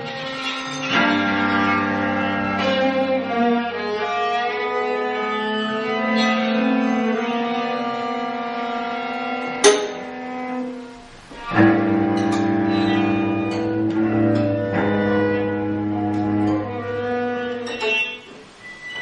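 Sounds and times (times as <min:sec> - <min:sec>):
sharp struck accent: 0:09.6 - 0:10.2.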